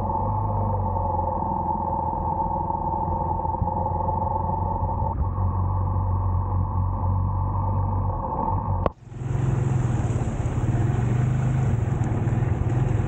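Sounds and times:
wind: 0:00.0 - 0:13.0
motorcycle engine running: 0:09.0 - 0:13.0
wet road hiss: 0:09.0 - 0:13.0.

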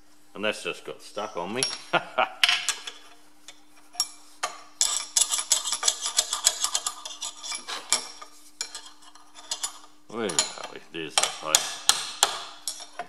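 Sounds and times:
steel rod tapping metal: 0:10.3 - 0:13.0.

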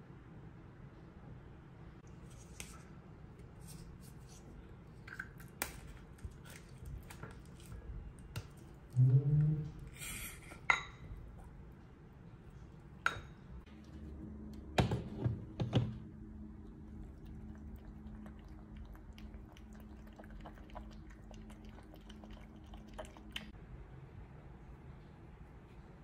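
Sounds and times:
cat eating wet food: 0:16.4 - 0:23.6.

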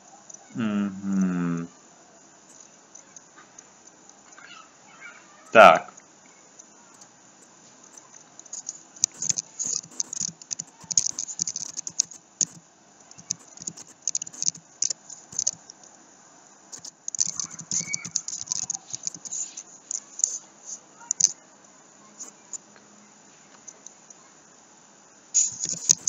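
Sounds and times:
typing on computer keyboard: 0:07.9 - 0:15.7, 0:16.7 - 0:19.4, 0:25.4 - 0:26.0.

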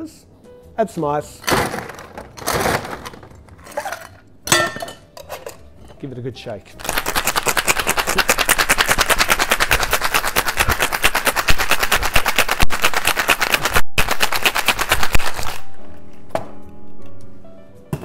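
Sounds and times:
ice rattling in cocktail shaker: 0:06.8 - 0:15.6.

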